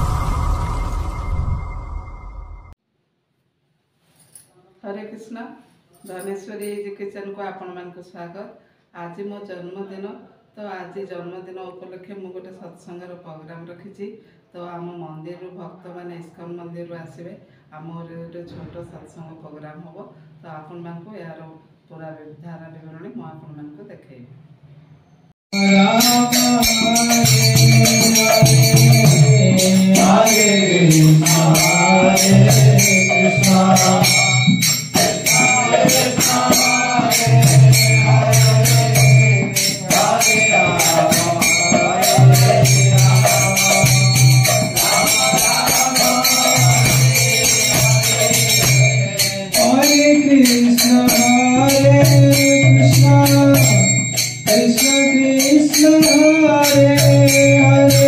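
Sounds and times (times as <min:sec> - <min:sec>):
jingling percussion: 0:05.9 - 0:07.0, 0:25.5 - 0:58.0.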